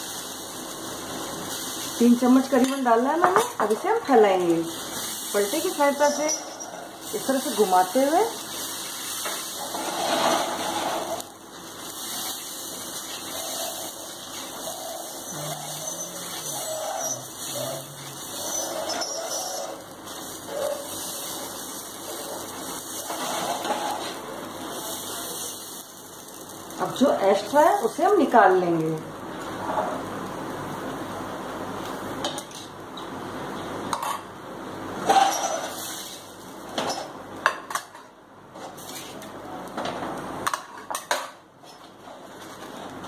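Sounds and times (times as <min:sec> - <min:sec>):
batter sizzling on hot griddle: 0:00.0 - 0:43.0
spatula scraping pan: 0:04.8 - 0:11.3, 0:11.9 - 0:24.2.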